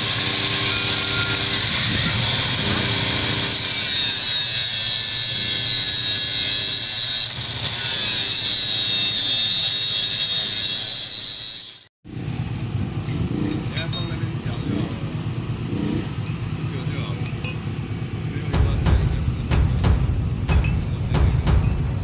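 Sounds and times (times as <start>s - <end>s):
angle grinder cutting steel: 0.0s - 11.9s.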